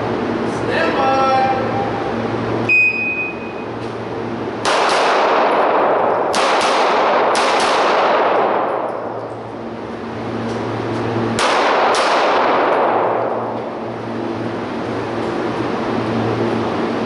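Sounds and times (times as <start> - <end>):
shot timer beep: 2.7 - 3.6
handgun shots echoing: 4.6 - 9.1, 11.4 - 13.5.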